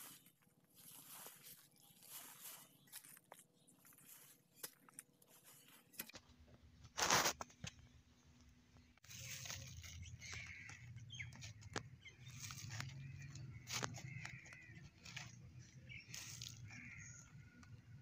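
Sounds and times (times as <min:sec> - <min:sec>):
hand rustling compost and soil: 0:00.0 - 0:07.6, 0:09.0 - 0:18.0.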